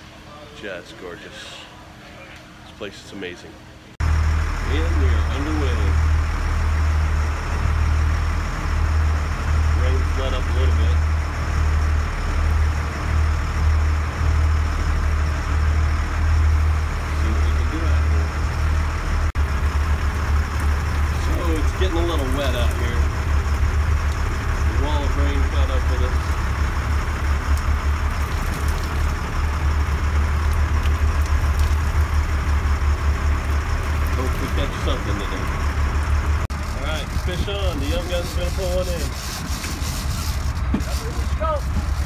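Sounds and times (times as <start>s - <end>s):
wind: 0.0s - 42.0s
boat engine droning: 4.0s - 42.0s
churning wake hissing: 19.4s - 42.0s.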